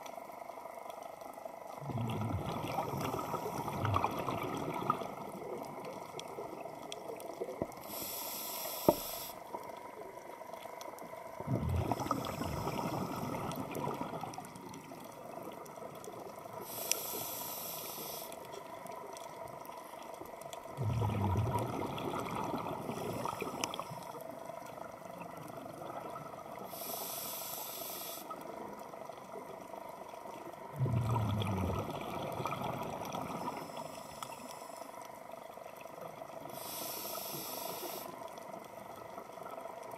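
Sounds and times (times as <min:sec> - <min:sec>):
exhaled bubbles rushing: 0:01.8 - 0:06.8, 0:11.3 - 0:15.9, 0:20.7 - 0:23.7, 0:30.6 - 0:33.6
regulator inhale hiss: 0:02.8 - 0:03.8, 0:07.8 - 0:09.6, 0:11.8 - 0:13.6, 0:16.6 - 0:18.5, 0:26.6 - 0:28.5, 0:33.3 - 0:35.0, 0:36.4 - 0:38.3
faint clicks: 0:14.3 - 0:20.7, 0:23.5 - 0:25.6, 0:33.4 - 0:35.2.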